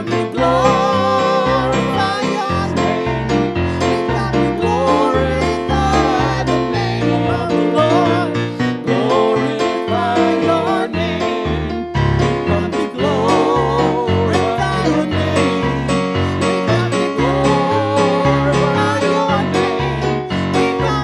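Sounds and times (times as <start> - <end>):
woman and man singing: 0.0 - 11.6, 12.5 - 21.0
electronic keyboard accompaniment: 0.0 - 21.0.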